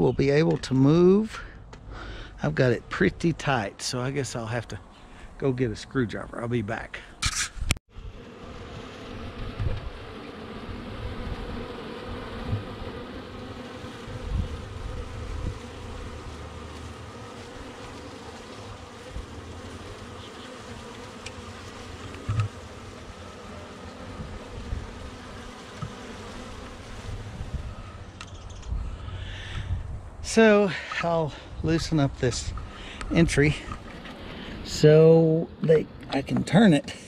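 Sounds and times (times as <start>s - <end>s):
bees buzzing: 7.9s - 35.9s.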